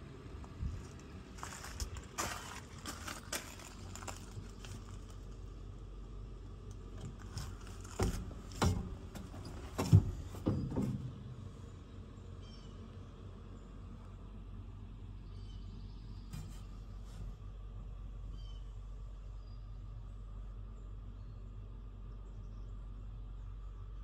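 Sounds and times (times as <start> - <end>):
low steady hum: 0.0 - 24.0
knocks and clunks in truck cab: 7.0 - 11.4.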